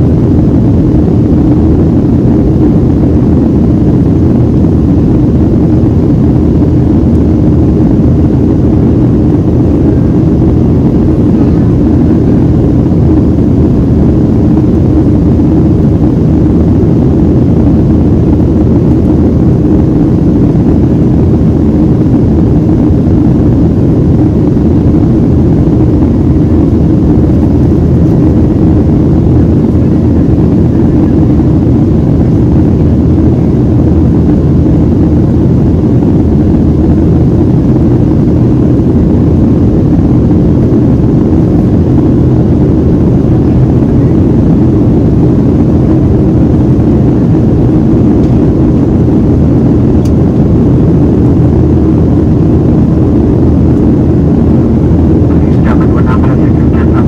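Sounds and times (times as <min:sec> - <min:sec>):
airplane cabin low rush: 0:00.0 - 0:57.0.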